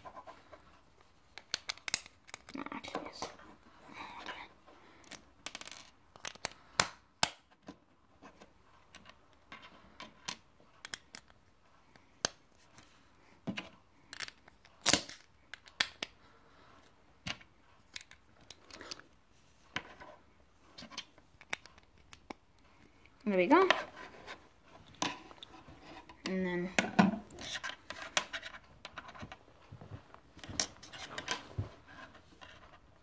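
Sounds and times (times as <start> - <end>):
plastic bricks clicking together: 5.0 - 7.4.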